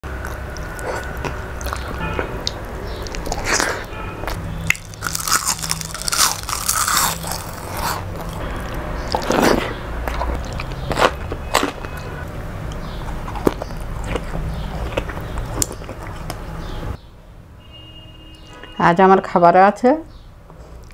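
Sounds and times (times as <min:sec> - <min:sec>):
person chewing food: 0:00.0 - 0:16.9, 0:20.5 - 0:20.9
crisp bite into chilli: 0:03.0 - 0:08.4.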